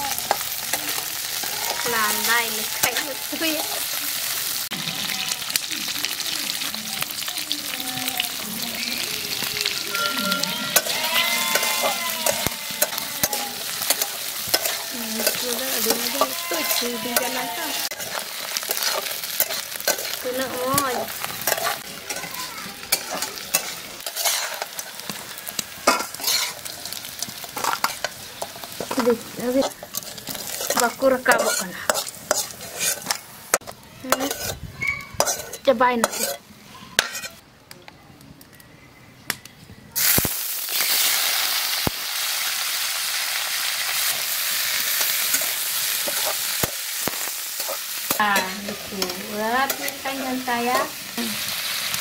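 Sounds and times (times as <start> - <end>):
crabs sizzling in oil: 0.0 - 37.4, 39.9 - 52.0
spatula scraping metal pan: 9.8 - 24.9, 25.8 - 37.4.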